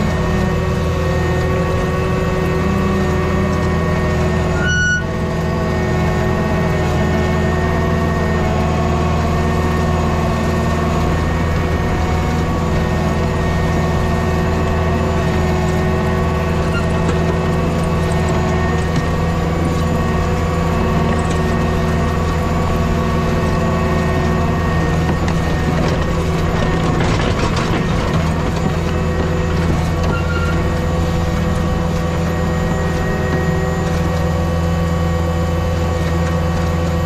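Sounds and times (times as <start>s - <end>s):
diesel engine running: 0.0s - 37.0s
short high beep: 4.6s - 5.1s.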